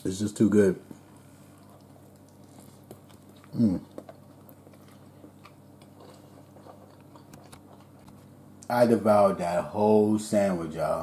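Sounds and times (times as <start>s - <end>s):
person chewing: 0.9s - 8.4s.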